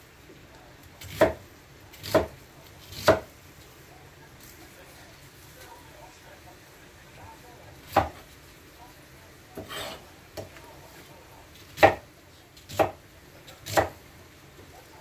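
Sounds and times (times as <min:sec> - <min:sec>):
knife chopping on cutting board: 0:01.0 - 0:03.3, 0:07.9 - 0:08.2, 0:09.6 - 0:10.5, 0:11.6 - 0:14.0
knife scraping board: 0:09.6 - 0:10.1.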